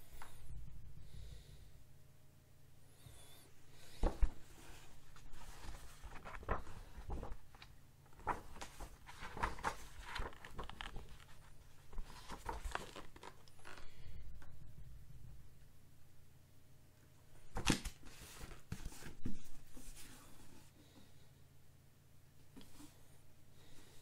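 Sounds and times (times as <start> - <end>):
pages rustling and flipping: 3.9 - 14.1, 17.4 - 20.3.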